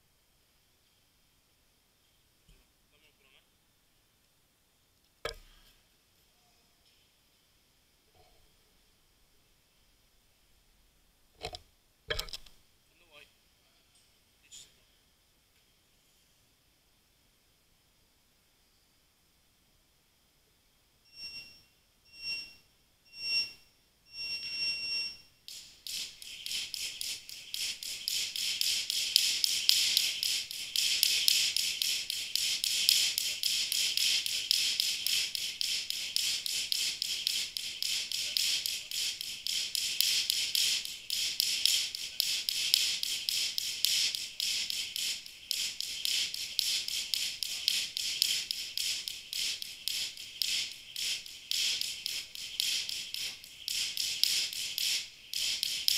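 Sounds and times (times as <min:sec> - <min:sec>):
interval timer beeps: 0:21.1 - 0:55.9
jump rope whirring and ticking: 0:24.2 - 0:55.9.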